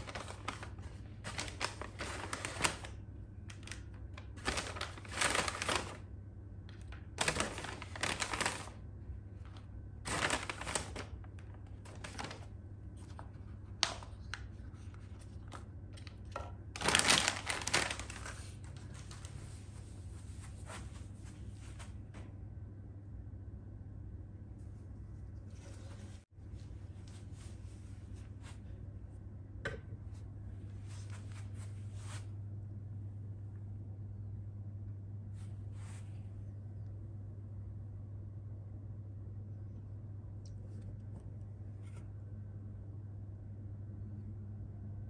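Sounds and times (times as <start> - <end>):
paper bag rustling and crinkling: 0.0 - 6.1, 6.7 - 21.0
low steady hum: 0.0 - 45.0.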